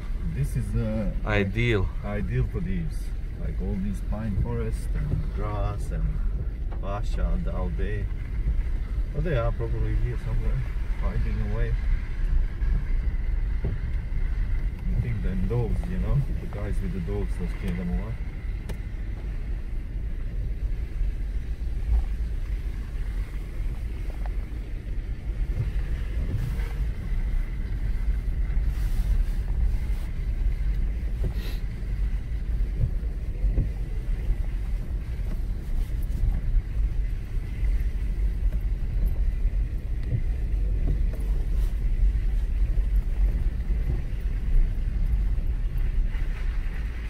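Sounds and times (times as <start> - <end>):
car engine and tyres rumbling: 0.0 - 47.0.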